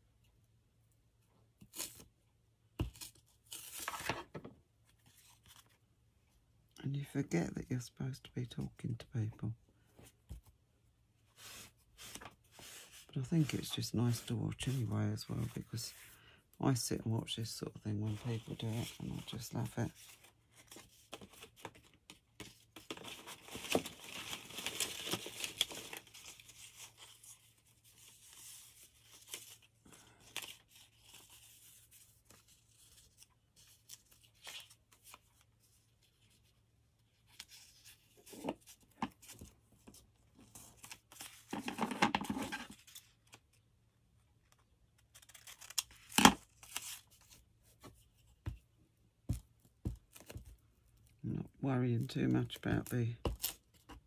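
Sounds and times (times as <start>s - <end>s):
paper rustling and scraping: 2.8s - 5.8s, 11.3s - 16.1s, 37.1s - 43.5s.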